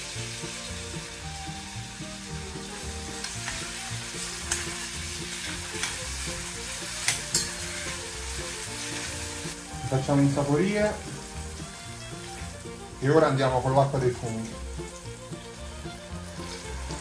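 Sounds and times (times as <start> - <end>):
mushrooms sizzling in hot oil: 0.0 - 17.0
metal spoon clinking against pan: 4.2 - 4.8, 5.4 - 6.0, 7.0 - 8.0.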